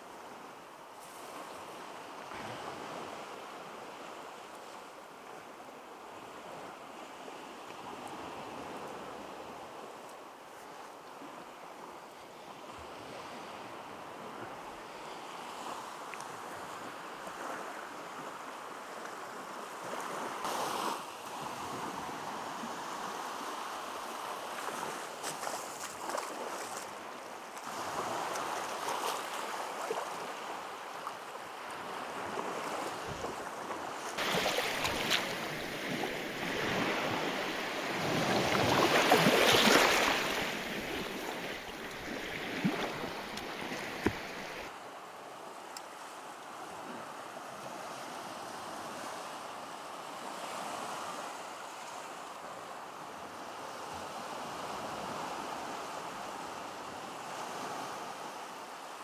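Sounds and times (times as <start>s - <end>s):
waves washing on shore: 12.2s - 59.0s
wind on microphone: 31.8s - 44.7s
water sloshing in shallows: 32.4s - 44.7s.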